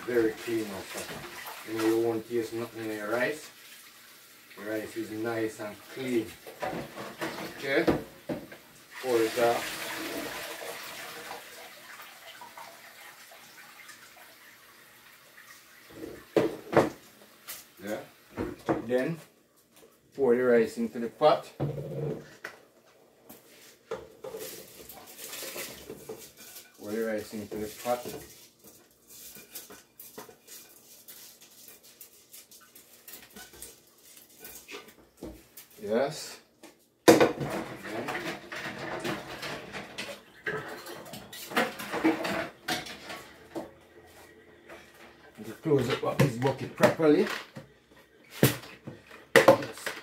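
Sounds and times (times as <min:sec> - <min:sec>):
water splashing into sink: 0:00.0 - 0:17.0.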